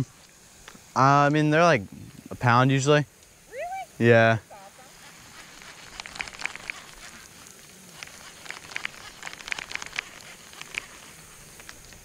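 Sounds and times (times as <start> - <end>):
fishing reel clicking: 5.3 - 7.3, 8.0 - 12.0.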